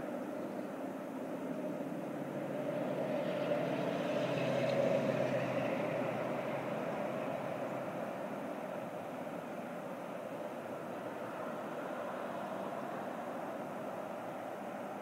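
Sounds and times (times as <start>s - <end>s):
distant passing vehicle engine: 2.3s - 9.6s.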